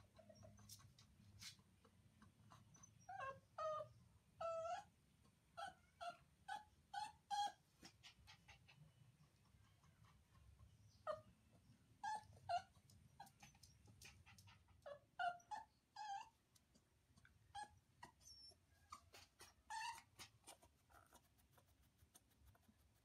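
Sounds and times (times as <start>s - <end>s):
puppy whimpering: 0.0s - 1.0s, 2.5s - 4.9s, 5.6s - 8.8s, 10.9s - 11.3s, 12.0s - 16.4s, 17.5s - 21.2s.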